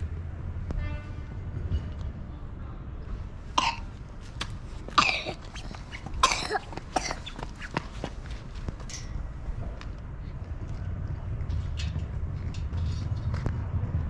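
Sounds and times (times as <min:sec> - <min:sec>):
person coughing: 0:03.6 - 0:04.0, 0:04.9 - 0:05.6, 0:06.2 - 0:07.3
steady low rumble: 0:08.1 - 0:14.0.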